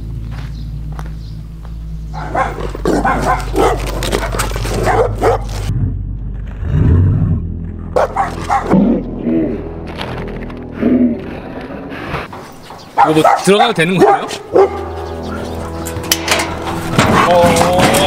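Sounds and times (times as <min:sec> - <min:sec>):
large dogs barking: 0:02.1 - 0:05.7, 0:08.0 - 0:09.0, 0:12.8 - 0:16.0.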